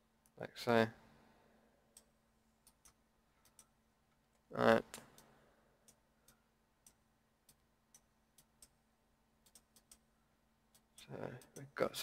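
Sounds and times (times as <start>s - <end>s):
mouse and keyboard clicking: 9.4s - 10.0s.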